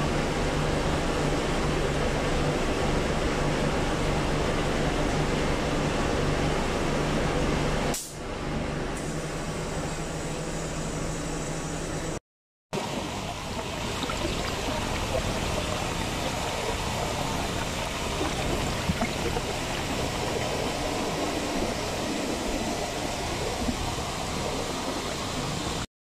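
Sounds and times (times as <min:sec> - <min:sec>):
water rushing over weir: 0:12.8 - 0:25.9.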